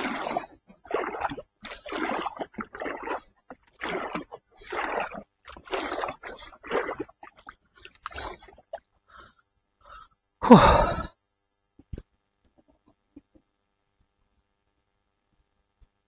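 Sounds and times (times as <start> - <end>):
paddle strokes splashing water: 0.0 - 9.2.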